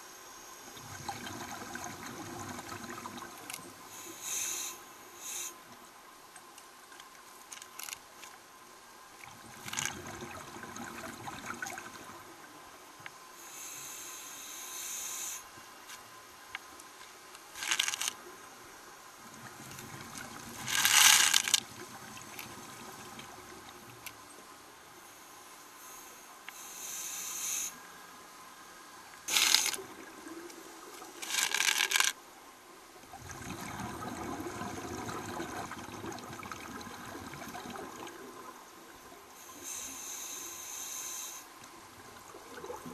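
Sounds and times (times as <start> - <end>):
hissing regulator inhalations: 3.9 - 5.6, 13.4 - 15.5, 25.8 - 27.8, 39.4 - 41.5.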